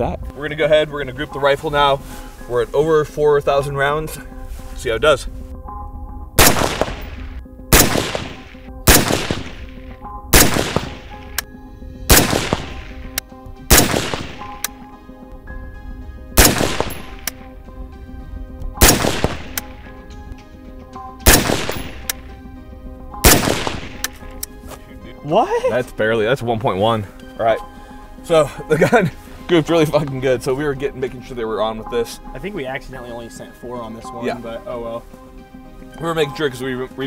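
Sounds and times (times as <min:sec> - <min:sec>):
rifle shots with echo: 0:06.4 - 0:11.4, 0:12.1 - 0:14.8, 0:16.4 - 0:17.4, 0:18.8 - 0:19.9, 0:21.2 - 0:22.3, 0:23.2 - 0:24.2.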